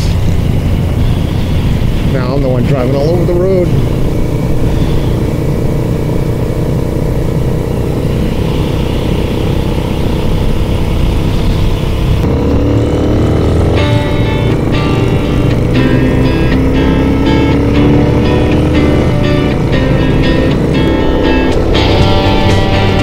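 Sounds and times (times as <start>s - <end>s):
motorcycle engine running: 0.0s - 23.0s
music: 0.9s - 4.0s, 13.6s - 23.0s.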